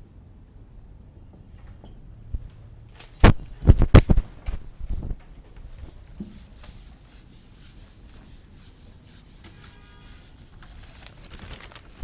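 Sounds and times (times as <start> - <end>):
rubbing on a whiteboard: 5.8 - 11.6.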